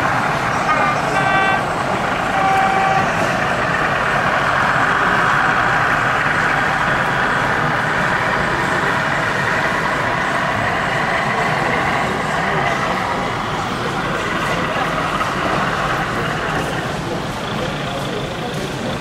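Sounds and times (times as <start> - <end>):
model locomotive diesel engine sound: 0.0 - 19.0
short horn notes: 2.3 - 3.2.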